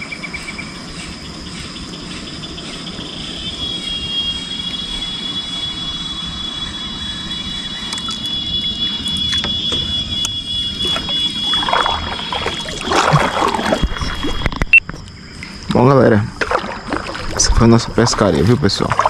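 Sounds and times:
high-pitched whine: 0.0 - 18.8
paddle splashing in water: 9.0 - 10.0, 10.6 - 14.8, 16.3 - 19.0.

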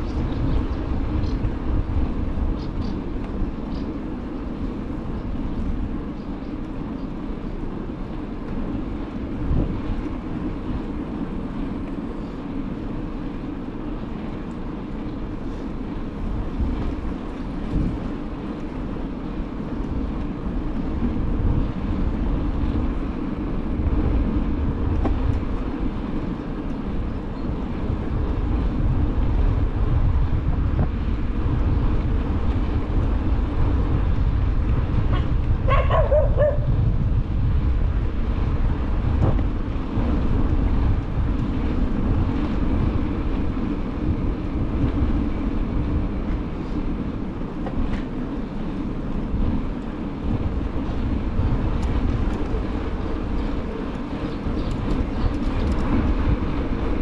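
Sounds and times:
wind noise on microphone: 0.0 - 57.0
dog barking: 35.1 - 36.7.

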